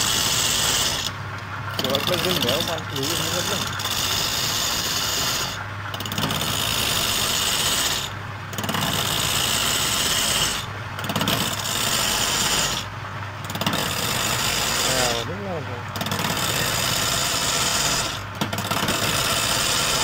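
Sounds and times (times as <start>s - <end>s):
chisel scraping spinning wood: 0.0s - 20.0s
lathe motor hum: 0.0s - 20.0s.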